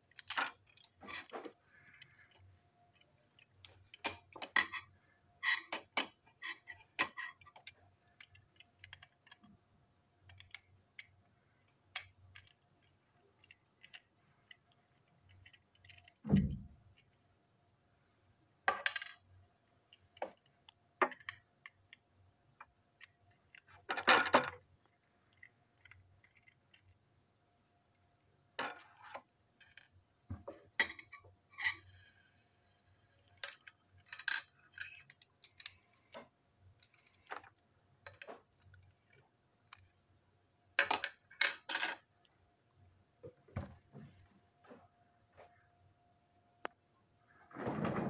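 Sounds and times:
toy parts clicking and tapping: 0.0s - 9.6s, 10.2s - 17.2s, 18.7s - 27.0s, 33.1s - 40.0s.

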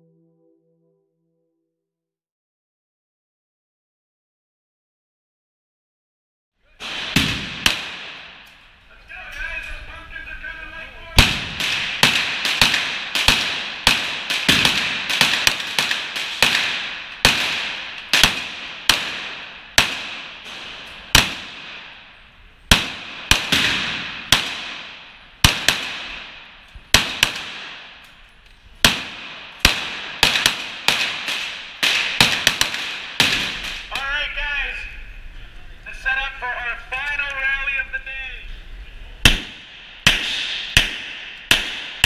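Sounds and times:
pistol shots echoing indoors: 6.8s - 8.6s, 11.2s - 22.1s, 22.7s - 28.1s, 28.8s - 34.0s, 39.2s - 42.0s.

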